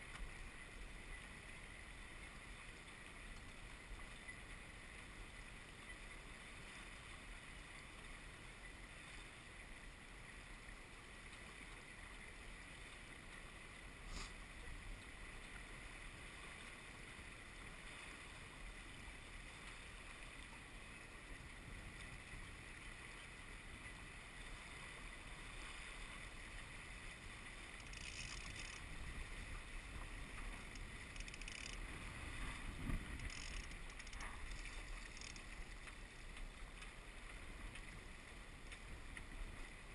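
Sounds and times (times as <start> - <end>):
water lapping against hull: 0.0 - 39.9
wind on microphone: 28.4 - 35.0.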